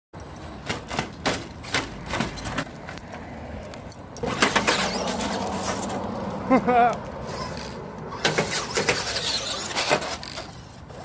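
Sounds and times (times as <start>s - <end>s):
sharp knocks and clatter: 0.6s - 3.1s
rc truck motor whining: 4.3s - 6.0s, 7.2s - 11.0s.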